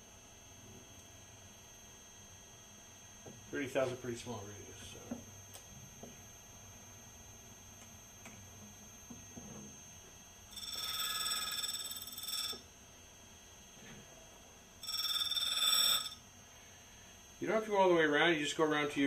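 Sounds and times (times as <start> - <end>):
grinding wheel whine: 8.6 - 12.7, 14.8 - 16.2
high-pitched ringing grinding: 9.0 - 12.8, 14.7 - 19.0.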